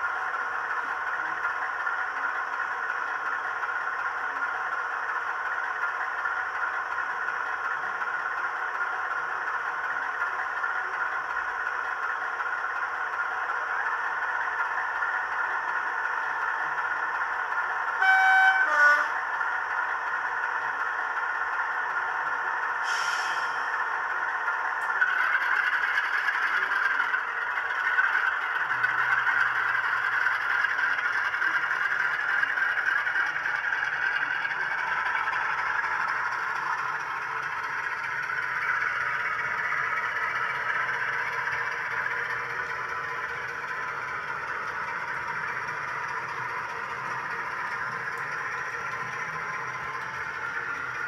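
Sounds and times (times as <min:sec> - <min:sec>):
model coach wheels rattling on track: 0:00.0 - 0:18.0, 0:24.0 - 0:51.0
diesel engine sound from small speaker: 0:00.0 - 0:51.0.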